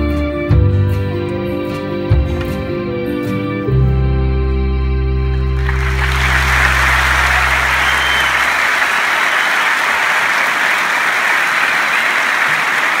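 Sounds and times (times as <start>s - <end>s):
band holding low chord: 2.3s - 9.1s
audience applauding: 5.4s - 13.0s.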